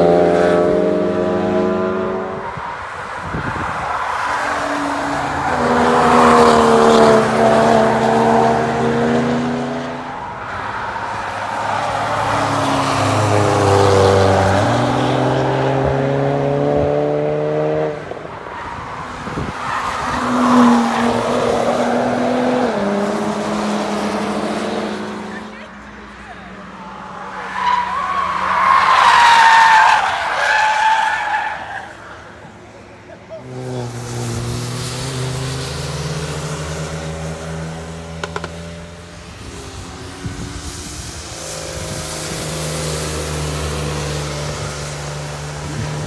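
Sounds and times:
cars passing with engines revving: 0:00.0 - 0:46.0.

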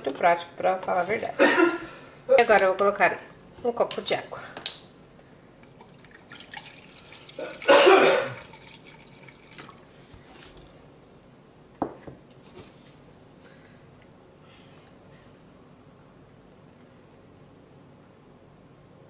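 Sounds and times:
water pouring into plastic cup: 0:05.6 - 0:10.1.

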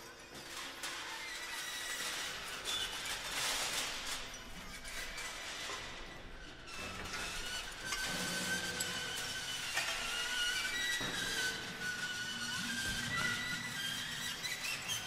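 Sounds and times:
scraping and clinking objects: 0:06.8 - 0:15.0.

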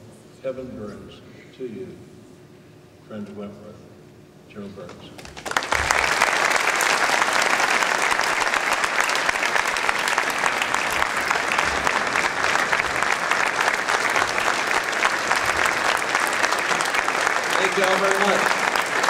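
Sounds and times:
audience applauding: 0:05.2 - 0:19.0.

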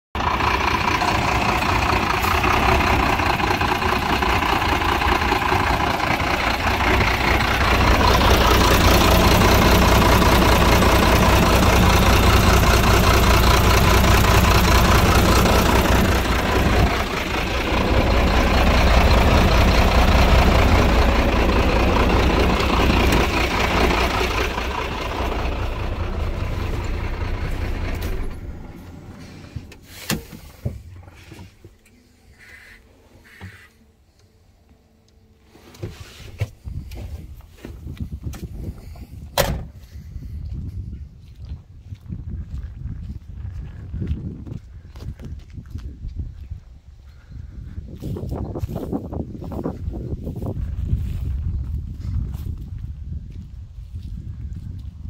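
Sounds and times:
diesel truck engine idling: 0:00.2 - 0:34.2.

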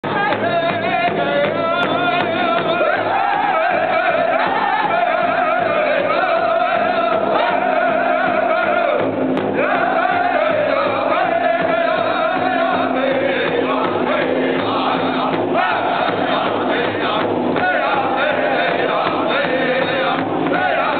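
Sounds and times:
group singing high-pitched: 0:00.0 - 0:20.9
large hand drum beating: 0:00.0 - 0:20.9.

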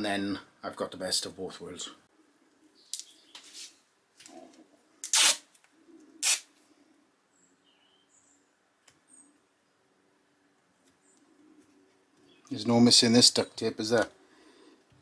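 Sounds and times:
duct tape ripping off roll: 0:05.0 - 0:05.6, 0:06.2 - 0:06.5
faint bird chirps: 0:07.3 - 0:09.9.

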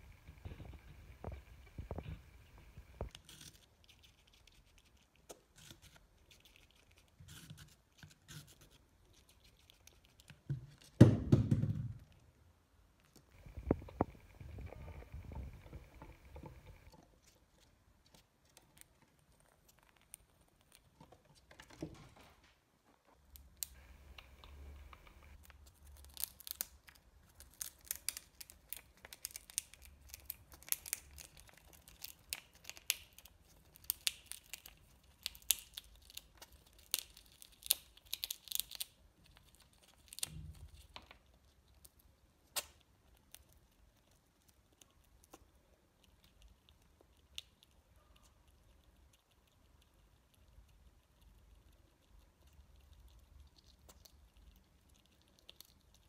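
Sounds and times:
squirrel gnawing nut shell: 0:00.0 - 0:22.3, 0:22.9 - 0:56.0.

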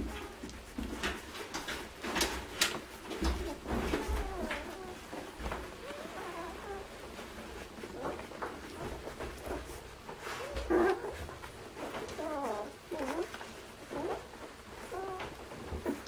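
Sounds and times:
puppies squeaking and whimpering: 0:03.2 - 0:16.0.

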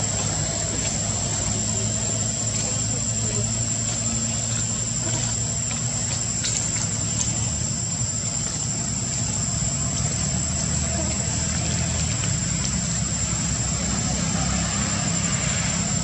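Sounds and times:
motor engine hum: 0:00.0 - 0:16.0.

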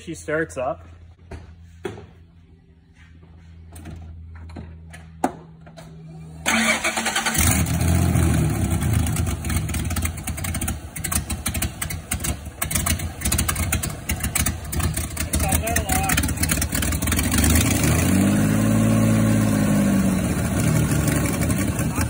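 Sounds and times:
car engine starting and running: 0:03.7 - 0:22.0.

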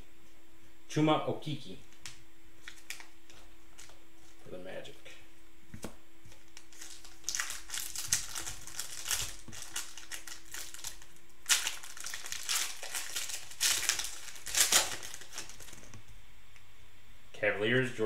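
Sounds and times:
plastic wrapper crinkling and tearing: 0:01.9 - 0:04.0, 0:06.4 - 0:16.0.

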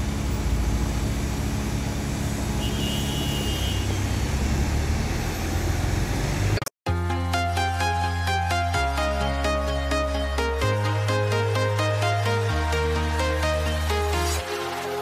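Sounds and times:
street traffic rumble: 0:00.0 - 0:06.7
electronic music: 0:06.9 - 0:15.0.

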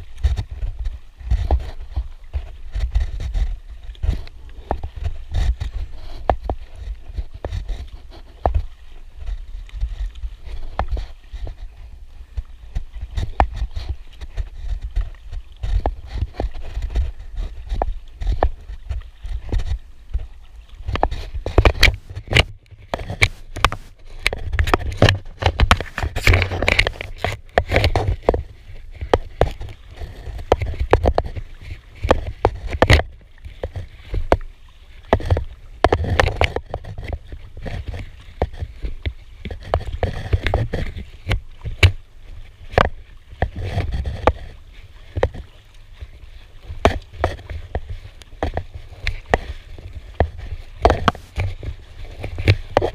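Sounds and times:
paddle splashing into water: 0:00.0 - 0:52.9
water slapping against hull: 0:00.0 - 0:52.9
clicks and knocks of paddle: 0:20.9 - 0:28.4, 0:46.8 - 0:52.9.

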